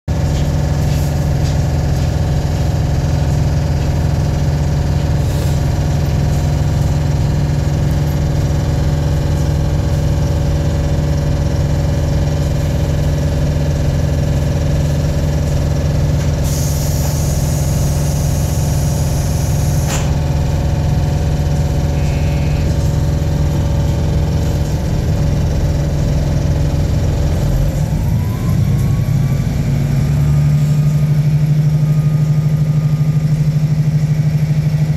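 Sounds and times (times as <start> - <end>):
diesel railcar engine running: 0.1 - 34.9
air hiss: 16.4 - 20.1
clunk: 19.8 - 20.2
rising whine: 27.3 - 34.9.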